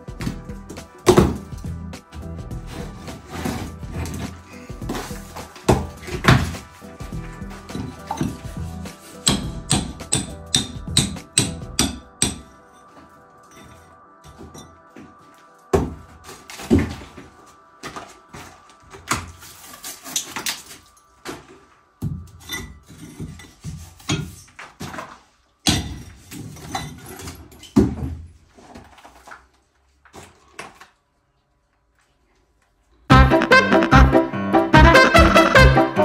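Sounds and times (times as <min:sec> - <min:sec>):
hammer striking steel chisel: 0:09.1 - 0:12.6.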